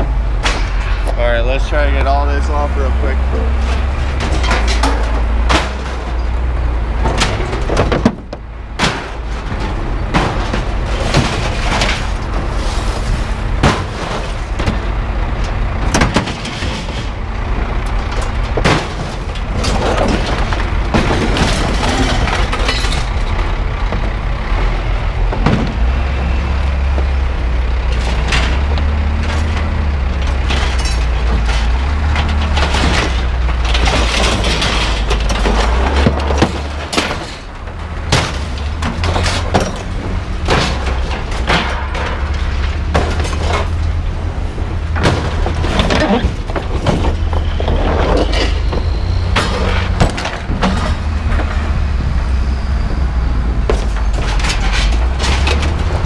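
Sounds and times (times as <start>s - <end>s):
low engine rumble: 0.0s - 56.0s
scrap metal clanging onto a pile: 3.6s - 6.4s, 8.8s - 14.8s, 15.8s - 17.2s, 18.1s - 23.4s, 27.8s - 44.0s, 44.9s - 51.6s, 53.7s - 56.0s.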